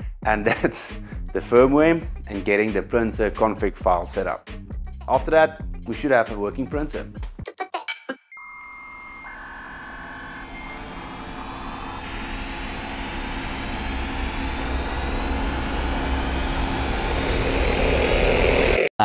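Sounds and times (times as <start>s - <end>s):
rising whoosh with low rumble: 9.2s - 18.8s.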